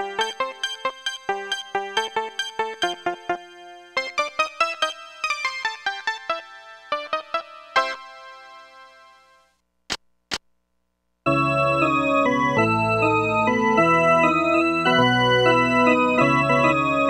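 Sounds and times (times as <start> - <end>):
keyboard sustained chords: 11.3 - 17.0.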